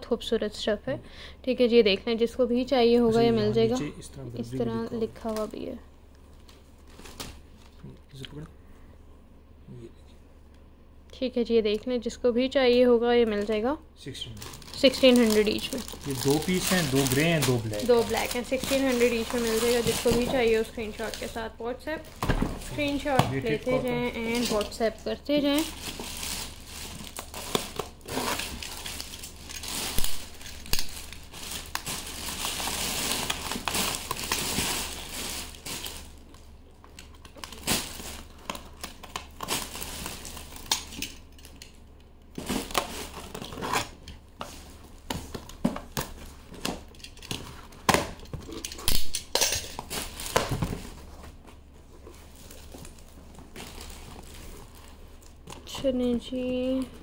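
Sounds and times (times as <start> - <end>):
plastic packaging crinkling: 6.3 - 7.8, 14.2 - 57.0.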